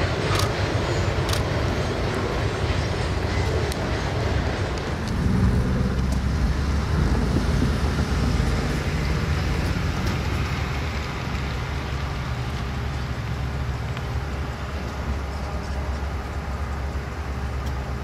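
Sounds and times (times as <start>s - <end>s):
distant vehicles rumbling: 0.0s - 18.0s.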